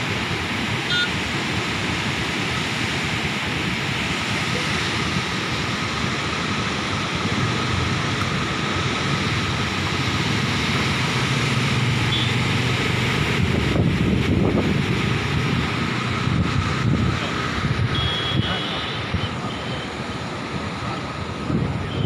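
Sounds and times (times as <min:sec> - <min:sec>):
floodwater rushing through sluice gates: 0:00.0 - 0:22.0
wind buffeting microphone: 0:12.9 - 0:18.2.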